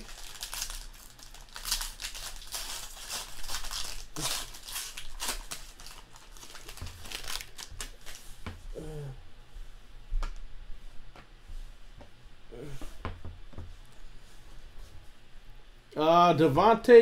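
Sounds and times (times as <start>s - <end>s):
foil wrapper crinkling: 0.0s - 8.3s.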